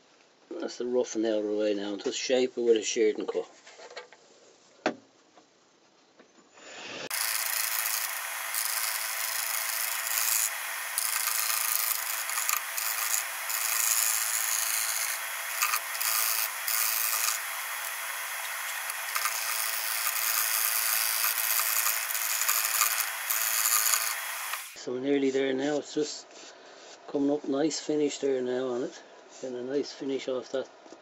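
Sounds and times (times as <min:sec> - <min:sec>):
lathe tool scraping wood: 0:07.1 - 0:24.8.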